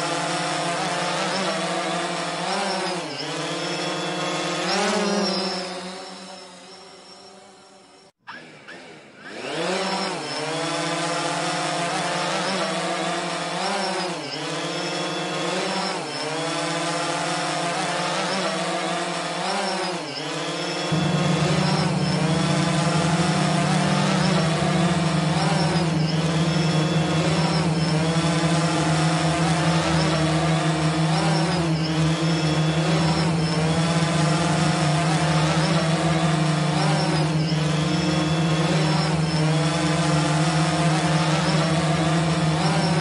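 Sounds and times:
drone propellers whining: 0:00.0 - 0:07.0, 0:08.3 - 0:43.0
steady low hum: 0:20.9 - 0:43.0.

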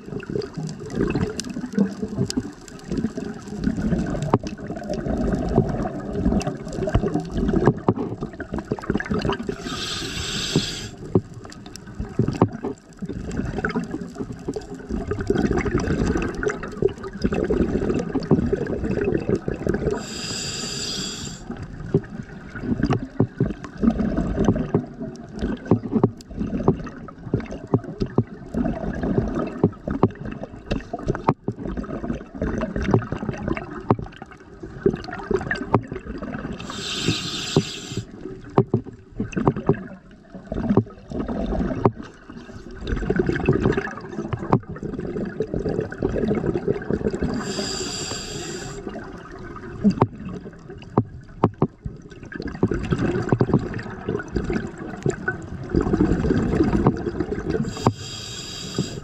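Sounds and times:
underwater exhaled bubbles rumbling: 0:00.0 - 0:59.0
regulator hissing inhalation: 0:09.5 - 0:11.0, 0:19.9 - 0:21.5, 0:36.6 - 0:38.1, 0:47.4 - 0:48.9, 0:57.6 - 0:59.0.

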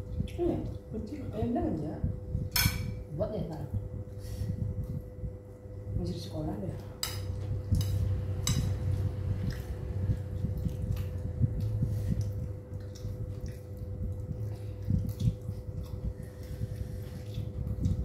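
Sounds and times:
faint hum: 0:00.0 - 0:18.0
squishing of sauced food: 0:07.0 - 0:18.0.

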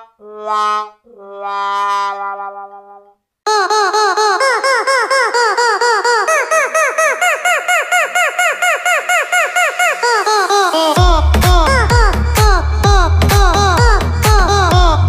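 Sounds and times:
cartoon squeaks: 0:00.0 - 0:11.0.

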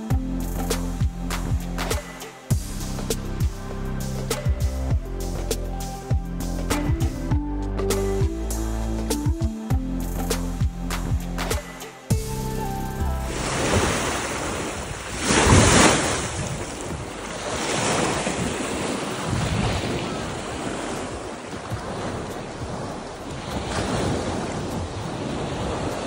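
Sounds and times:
sea washing in shallows: 0:13.3 - 0:26.0
wind buffeting microphone: 0:13.3 - 0:26.0.

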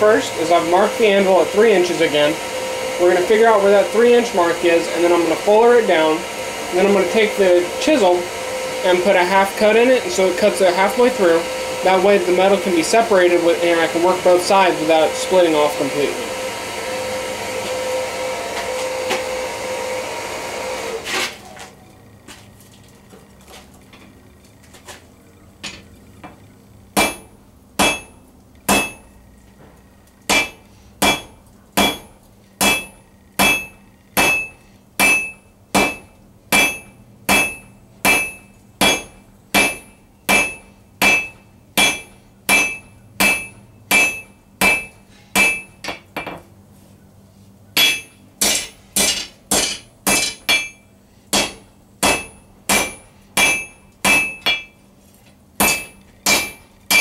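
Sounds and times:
forge air blower running: 0:00.0 - 0:22.0
hammer ringing on steel bar: 0:27.0 - 0:29.1, 0:30.3 - 0:45.9, 0:47.8 - 0:54.8, 0:55.6 - 0:57.0.

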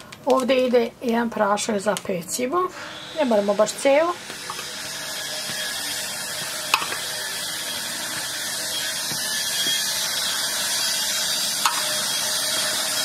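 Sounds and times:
power tool whirring: 0:02.7 - 0:13.0.

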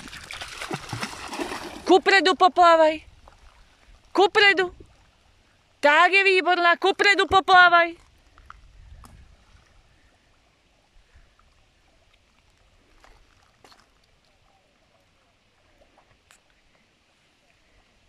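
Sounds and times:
small water splashes: 0:00.0 - 0:02.2, 0:03.0 - 0:05.6, 0:08.0 - 0:16.5.

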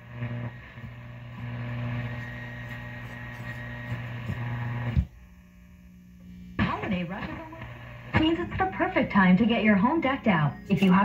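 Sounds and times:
radio hum: 0:00.0 - 0:11.0
static hiss: 0:00.0 - 0:11.0.

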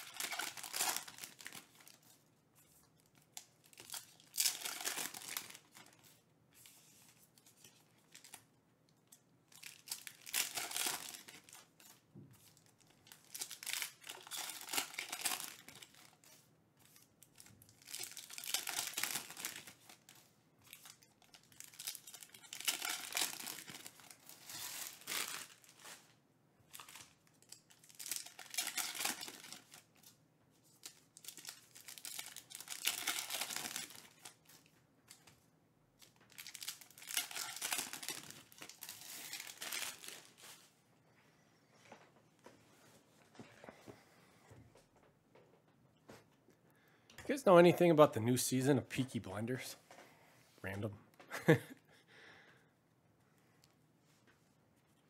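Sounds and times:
foil wrappers tearing and crinkling: 0:00.0 - 0:02.0, 0:03.2 - 0:06.2, 0:09.5 - 0:16.4, 0:17.0 - 0:26.1, 0:26.7 - 0:30.1, 0:30.8 - 0:35.2, 0:36.1 - 0:40.6.

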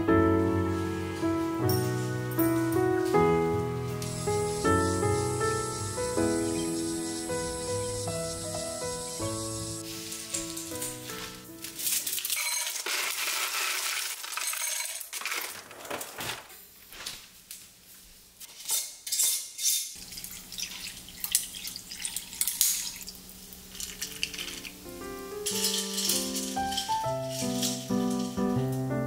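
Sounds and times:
ice cubes clinking in glass: 0:11.6 - 0:15.6, 0:19.1 - 0:23.1, 0:23.7 - 0:24.8, 0:25.4 - 0:28.5.

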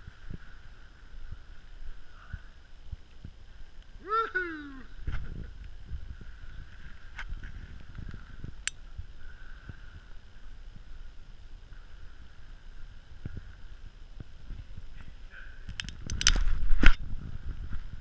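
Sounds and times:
wind rumble on microphone: 0:00.0 - 0:18.0
camera handling noise: 0:15.7 - 0:17.0
sharp clicks: 0:15.7 - 0:17.0.

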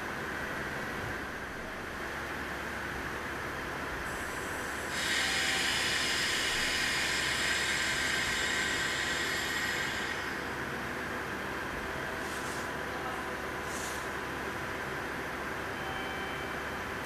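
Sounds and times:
train humming: 0:00.0 - 0:17.0
compressed air hissing: 0:04.1 - 0:10.6.

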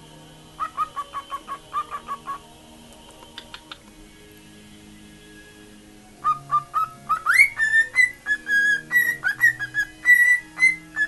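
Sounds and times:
cockatiel whistling: 0:00.6 - 0:02.4, 0:06.2 - 0:11.0.

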